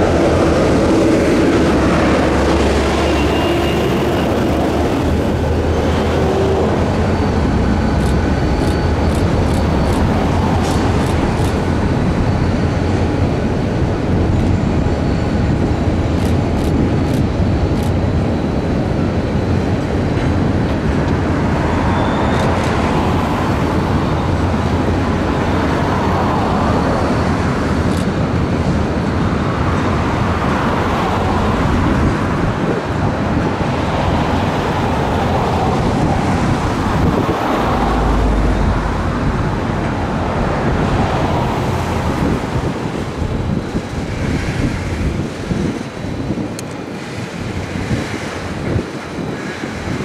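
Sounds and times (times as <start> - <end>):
wind buffeting microphone: 0.0 - 50.0
vehicle rumble: 33.7 - 45.6.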